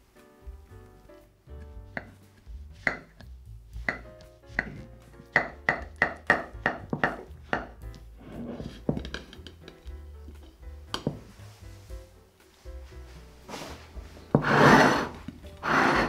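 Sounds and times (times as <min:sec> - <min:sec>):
soft background music: 0:00.0 - 0:16.0.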